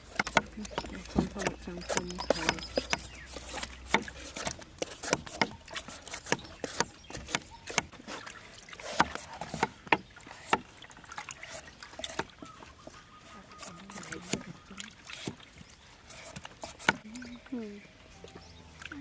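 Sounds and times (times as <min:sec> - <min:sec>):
hard objects knocking and clicking: 0:00.0 - 0:07.9.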